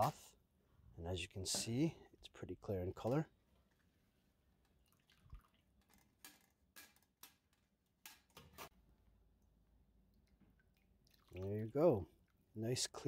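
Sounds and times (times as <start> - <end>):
liquid dripping into bowl: 4.6 - 6.0, 10.0 - 12.4.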